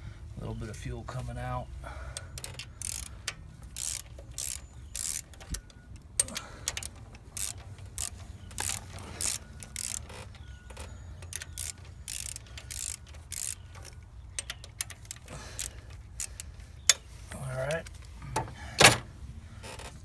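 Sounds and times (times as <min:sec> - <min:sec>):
socket ratchet clicking: 0:02.2 - 0:17.1.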